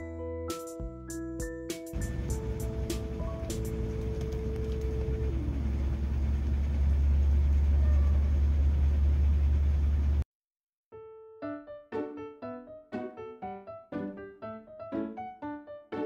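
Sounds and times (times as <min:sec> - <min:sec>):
light piano music: 0:00.0 - 0:06.4, 0:11.0 - 0:16.0
vehicle engine rumble: 0:02.0 - 0:10.2.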